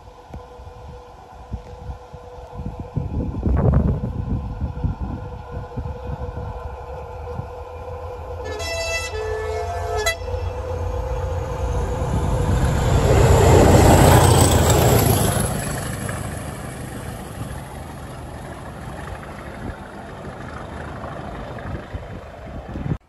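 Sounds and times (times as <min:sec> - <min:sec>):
diesel locomotive passing: 0:00.0 - 0:23.0
train wheels on rails: 0:05.5 - 0:23.0.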